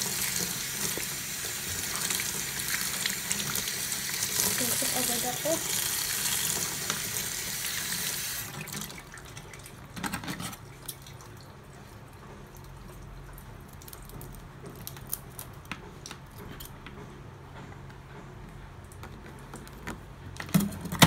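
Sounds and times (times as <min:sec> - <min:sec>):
tap water running into a tub: 0:00.0 - 0:15.0.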